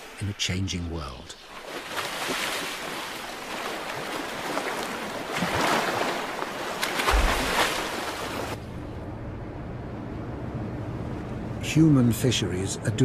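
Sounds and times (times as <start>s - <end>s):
sea water rushing and splashing: 0.0s - 8.8s.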